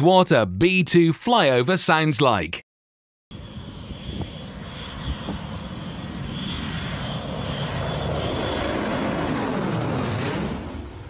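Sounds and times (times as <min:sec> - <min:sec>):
jet bomber flying overhead: 0:03.3 - 0:11.0.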